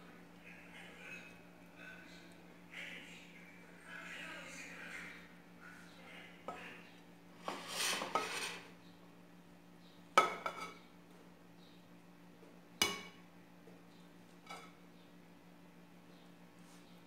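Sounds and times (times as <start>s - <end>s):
metal spoon scraping rice in pot: 7.4s - 8.7s.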